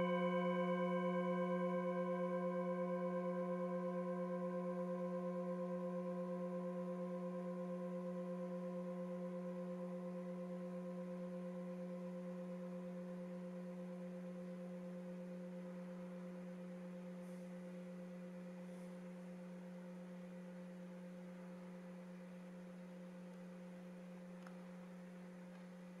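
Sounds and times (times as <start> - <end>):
singing bowl ringing: 0.0 - 6.0.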